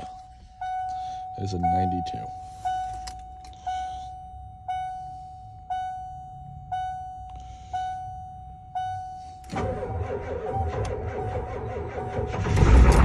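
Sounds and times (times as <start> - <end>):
dashboard warning chime: 0.0 - 9.6
diesel engine cranking and starting: 9.2 - 13.0.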